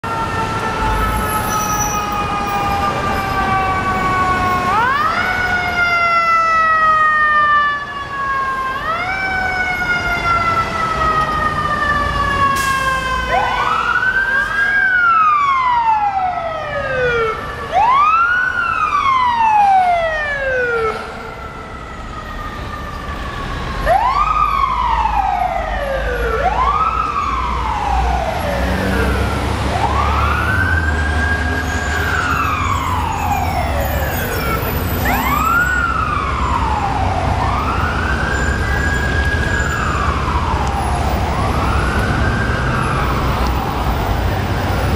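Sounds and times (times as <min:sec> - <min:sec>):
mechanical siren wailing: 0:00.0 - 0:44.2.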